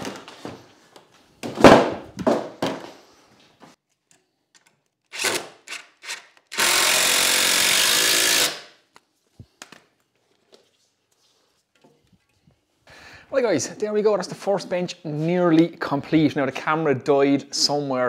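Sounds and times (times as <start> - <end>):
cordless drill driving a screw: 5.1 - 8.7.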